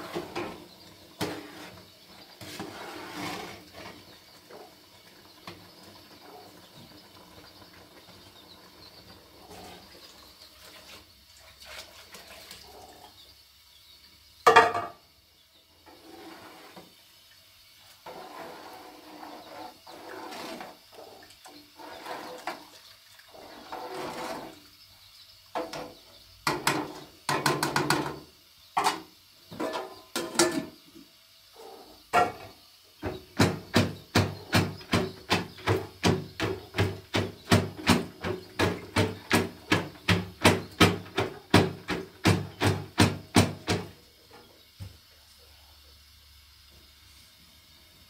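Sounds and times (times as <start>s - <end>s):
kitchen things rustling and clinking: 28.8s - 30.8s
wooden pestle pounding: 33.4s - 43.9s.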